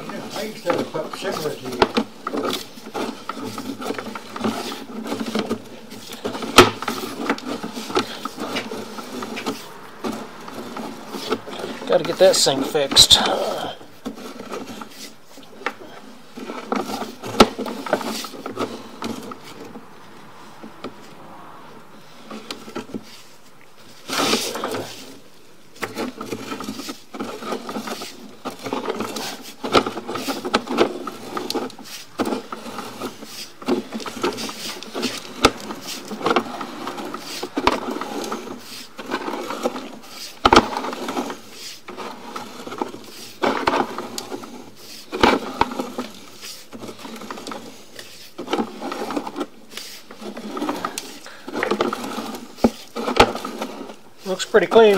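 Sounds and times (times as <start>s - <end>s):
cable clicking and scraping in pipe: 0.0s - 21.2s, 22.0s - 54.9s.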